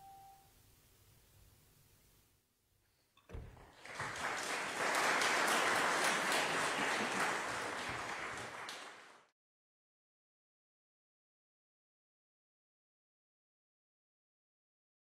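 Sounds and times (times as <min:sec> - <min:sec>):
audience applauding: 0:03.5 - 0:09.3.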